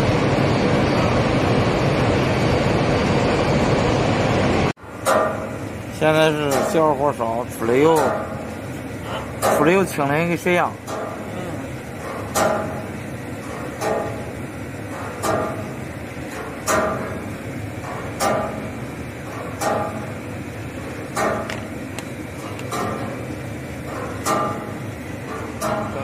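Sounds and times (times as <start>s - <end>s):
machinery humming: 0.0s - 26.0s
sharp metallic knock: 5.0s - 5.6s, 12.0s - 12.9s, 17.9s - 18.7s.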